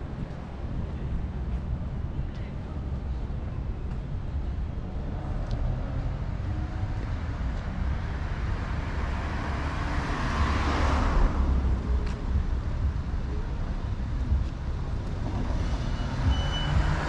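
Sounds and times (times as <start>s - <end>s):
low rumble of traffic: 0.0s - 17.0s
car passing: 7.7s - 12.1s.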